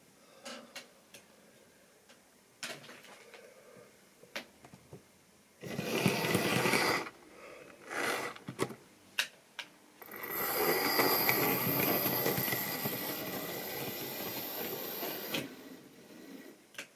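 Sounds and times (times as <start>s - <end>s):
electric motor whine: 5.6s - 7.1s, 10.0s - 15.6s
model train motor whirring: 5.6s - 7.1s, 7.8s - 8.4s, 10.0s - 15.6s
wheels clicking over rail joints: 10.0s - 15.5s.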